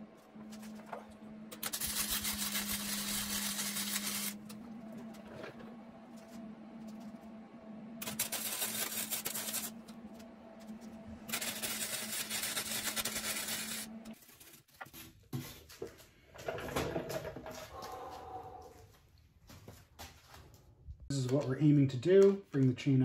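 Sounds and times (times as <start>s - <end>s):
steady hum: 0.0s - 14.2s
arc welder crackling sizzle: 1.5s - 4.9s, 8.0s - 14.4s.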